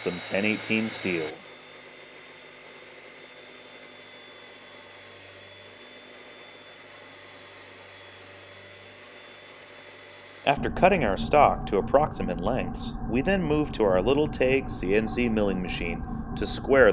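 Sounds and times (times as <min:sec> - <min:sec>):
chop saw grinding steel: 0:00.0 - 0:10.5.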